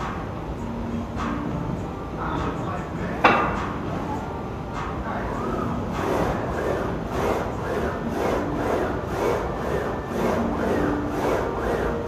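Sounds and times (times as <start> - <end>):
leg press sled sliding: 6.0 - 12.0.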